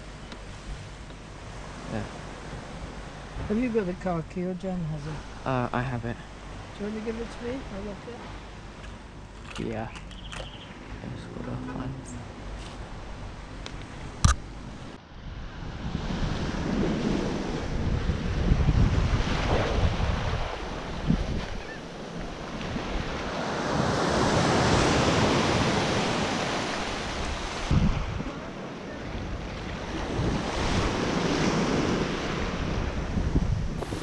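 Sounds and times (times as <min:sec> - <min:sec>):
wind buffeting microphone: 0:15.2 - 0:34.0
small waves breaking on sand: 0:15.3 - 0:34.0.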